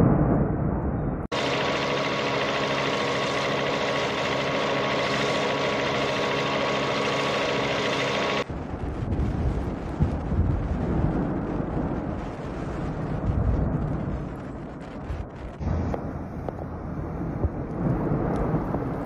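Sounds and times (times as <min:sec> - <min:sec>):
steady motor drone: 0:01.3 - 0:08.5
rough noisy rumble: 0:01.3 - 0:19.0.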